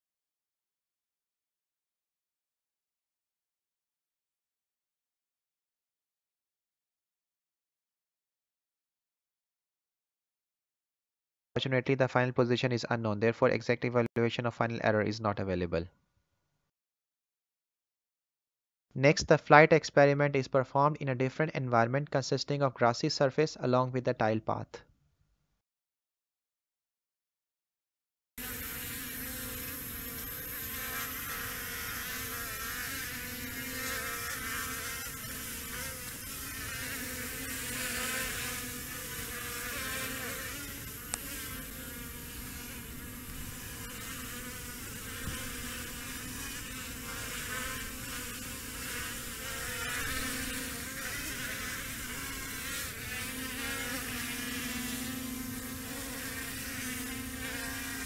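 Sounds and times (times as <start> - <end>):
drone propellers buzzing: 40.2 - 49.4.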